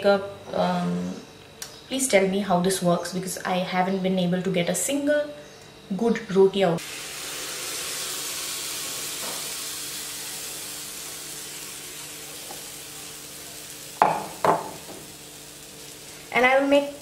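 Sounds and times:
batter sizzling on hot plate: 6.8s - 17.0s.

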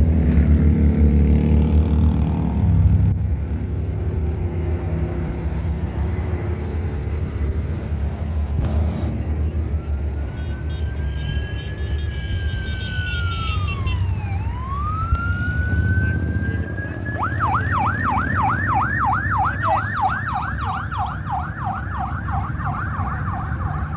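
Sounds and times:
motorcycle and quad engines rumbling: 0.0s - 23.9s
siren wailing and yelping: 9.6s - 23.9s.

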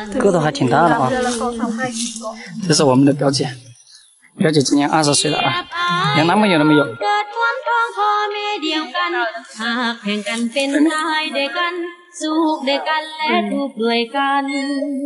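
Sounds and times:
woman singing: 0.0s - 2.2s, 5.2s - 15.0s.

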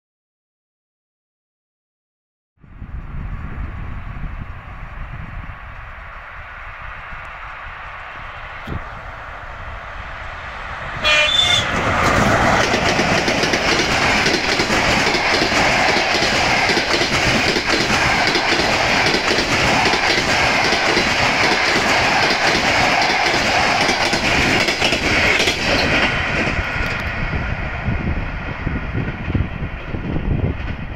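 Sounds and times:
train running noise: 2.6s - 30.9s
locomotive horn signal: 11.0s - 11.8s
wheels clacking over rail joints: 11.0s - 27.2s.

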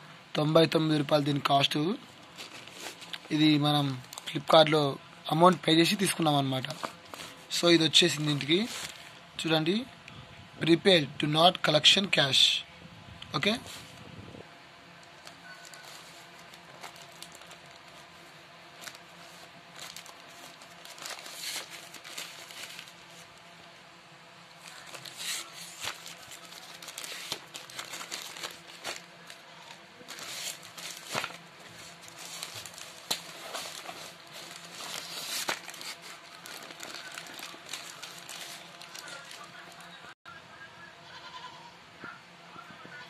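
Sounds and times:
plastic mailer bag crinkling: 15.0s - 23.4s, 24.6s - 40.0s.

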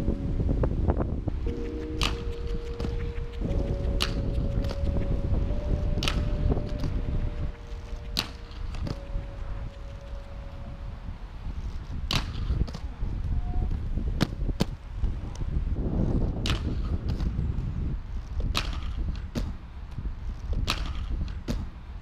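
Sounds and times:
steady low rumble: 0.0s - 22.0s
inline skate clacks: 18.3s - 21.8s.

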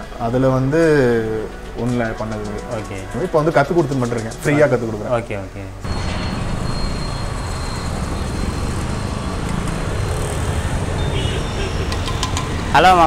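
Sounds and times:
road traffic rumble: 5.8s - 13.0s.

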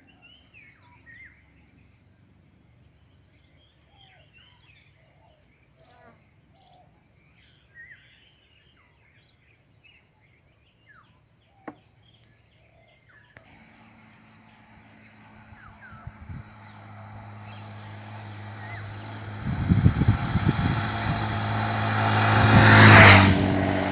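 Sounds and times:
insect drone: 0.0s - 23.9s
motorcycle engine approaching: 13.4s - 23.9s.

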